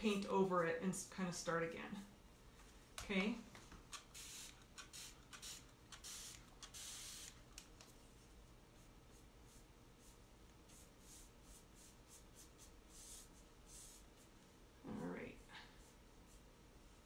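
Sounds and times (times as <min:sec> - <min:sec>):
paintbrush swishing on door: 0:08.7 - 0:14.5, 0:15.7 - 0:17.0.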